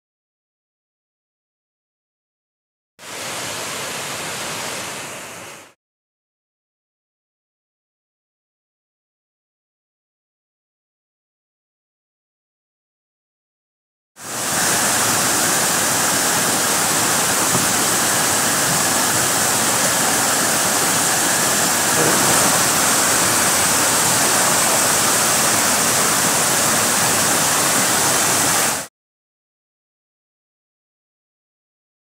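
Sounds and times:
creek rushing over boulders: 0:03.0 - 0:05.8, 0:14.2 - 0:28.9.

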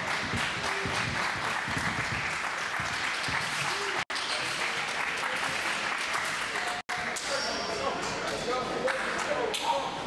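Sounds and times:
basketballs bouncing: 0:00.0 - 0:03.9.

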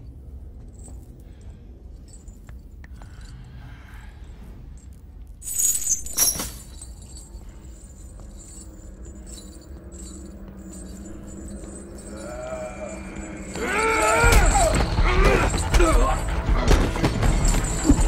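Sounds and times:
metal rattling and clinking: 0:00.3 - 0:03.6, 0:04.7 - 0:18.0.

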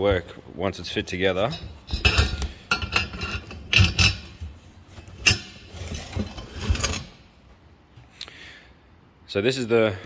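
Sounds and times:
metal clanking and knocking: 0:01.4 - 0:07.2.

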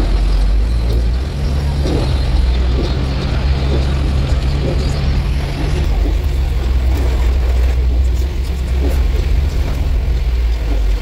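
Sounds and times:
car engine and tyre rumble: 0:00.0 - 0:11.0.

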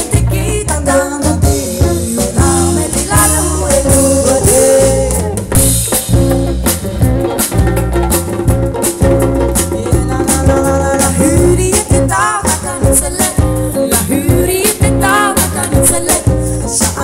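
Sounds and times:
women singing: 0:00.0 - 0:05.6, 0:09.7 - 0:17.0
drum kit: 0:00.0 - 0:17.0
guitars: 0:00.0 - 0:17.0.

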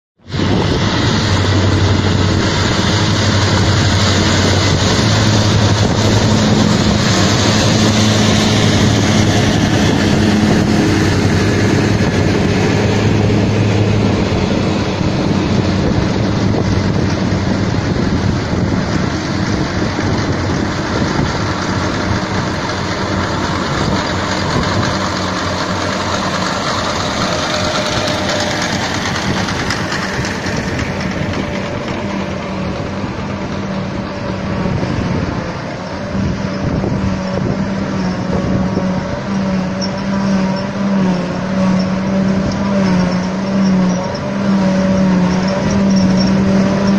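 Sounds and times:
constant rushing noise: 0:00.2 - 0:46.9
low engine hum: 0:00.2 - 0:46.9.

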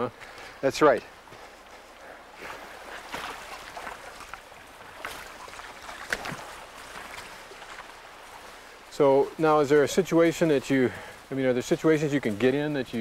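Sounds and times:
boots splashing through water: 0:01.1 - 0:11.3.

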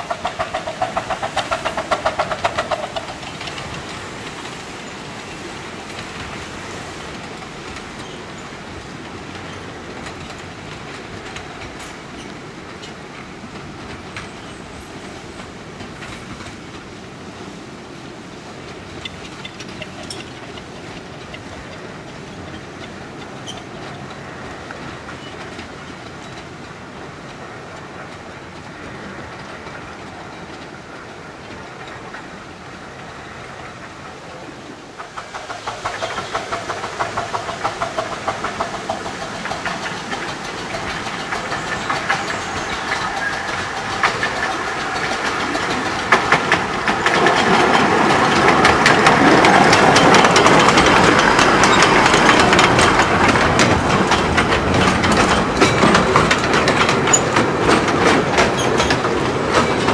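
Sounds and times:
clicks over rail joints: 0:00.0 - 0:59.9
pulsing locomotive sound: 0:00.0 - 0:59.9
train wheels rumbling on track: 0:00.0 - 0:59.9.

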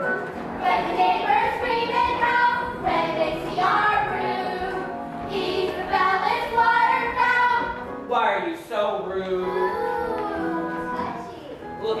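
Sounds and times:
instrumental accompaniment: 0:00.0 - 0:08.6
children singing: 0:00.6 - 0:07.8, 0:09.4 - 0:11.6.

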